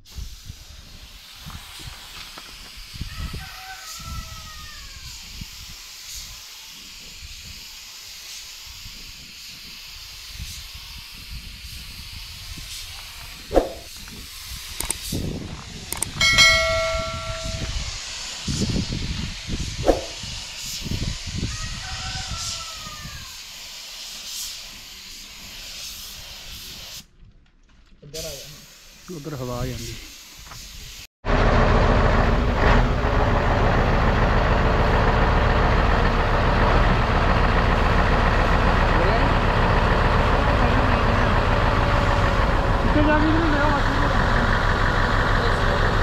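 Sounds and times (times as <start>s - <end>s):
paint spray gun hissing: 0.0s - 16.2s, 16.8s - 27.1s, 28.2s - 31.1s.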